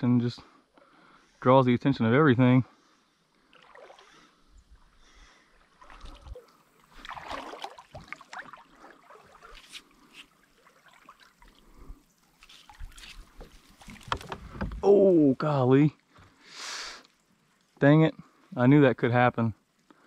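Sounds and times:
river water trickling and splashing: 2.8s - 20.0s
kayak and paddle knocks: 13.9s - 14.9s.

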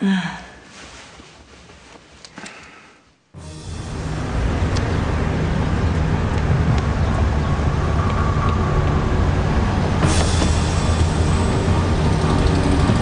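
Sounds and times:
city road traffic: 3.4s - 13.0s
deep engine hum: 3.4s - 13.0s.

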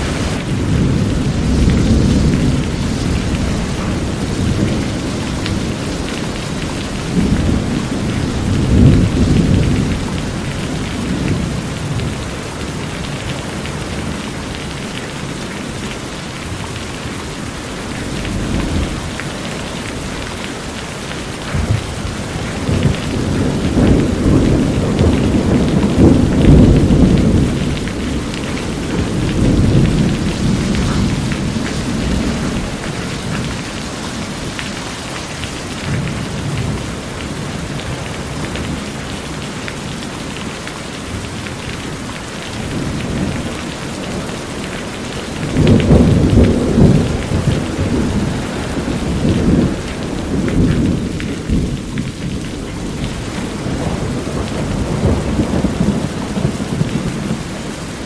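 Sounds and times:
thunder rolling: 0.0s - 12.2s, 21.3s - 34.6s, 42.6s - 57.5s
rain on a metal roof: 0.0s - 58.0s.

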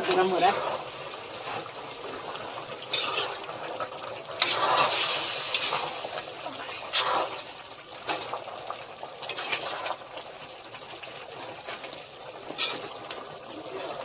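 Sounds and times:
food sizzling in a pot: 0.0s - 14.0s
ladle scraping a pot: 2.8s - 8.3s, 9.2s - 10.0s, 11.4s - 13.2s.

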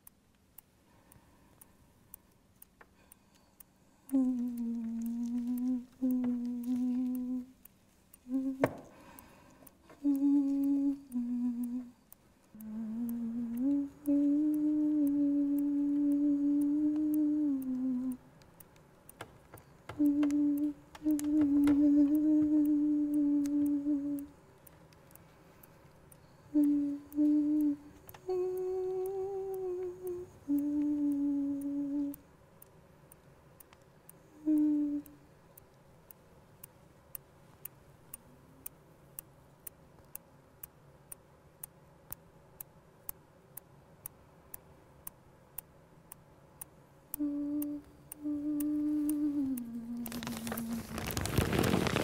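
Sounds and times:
soft steady ticking: 0.0s - 52.0s
woman humming a slow tune: 3.9s - 9.2s, 9.8s - 18.3s, 19.6s - 24.4s, 26.2s - 32.3s, 34.1s - 35.3s, 47.1s - 52.0s.

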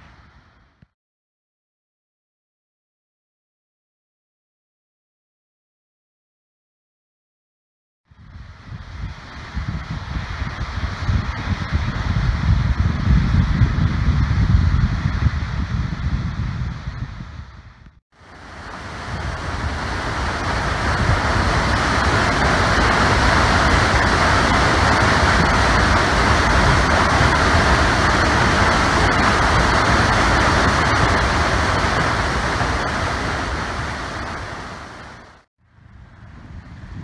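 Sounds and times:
water rushing through spillway: 18.2s - 35.5s.

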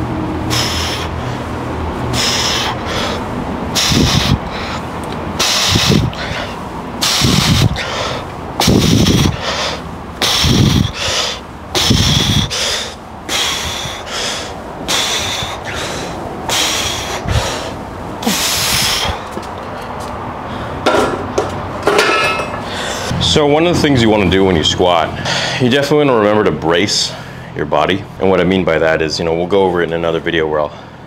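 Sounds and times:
man breathing heavily: 0.3s - 21.2s, 22.2s - 23.4s, 25.0s - 25.8s, 26.9s - 27.6s, 30.7s - 31.0s.

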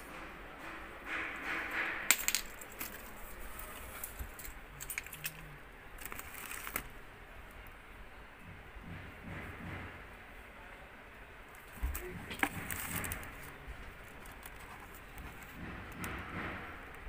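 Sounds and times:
small hard objects clinking: 2.1s - 6.9s.

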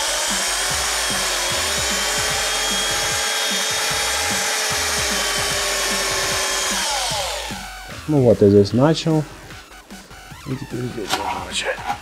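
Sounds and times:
electric drill cutting sheet metal: 0.0s - 7.9s.

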